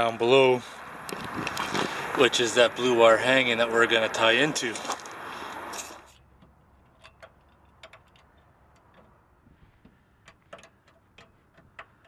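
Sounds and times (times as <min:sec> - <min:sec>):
ratcheting wrench clicks: 0:10.2 - 0:12.0.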